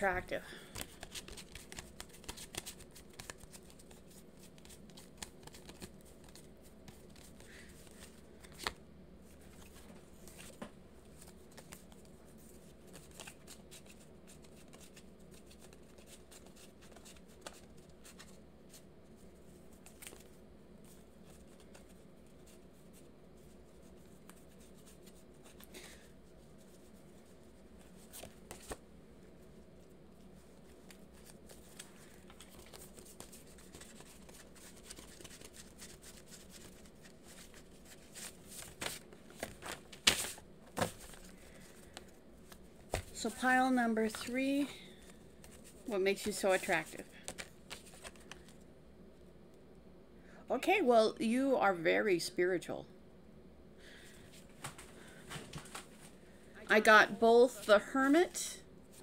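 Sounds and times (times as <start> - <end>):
low steady hum: 0.0 - 59.0
cards rustling: 0.6 - 18.8, 19.8 - 26.9, 27.8 - 28.8, 30.4 - 43.3, 44.0 - 48.6.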